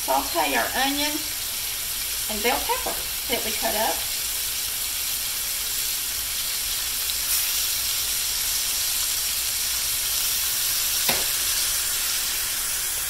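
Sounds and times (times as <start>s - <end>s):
steaks sizzling in oil: 0.0s - 13.0s.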